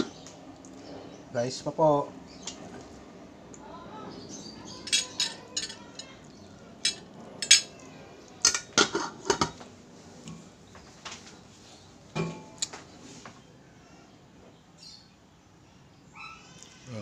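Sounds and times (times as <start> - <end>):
cutlery clinking on a plate: 4.8 - 6.1, 6.8 - 7.8.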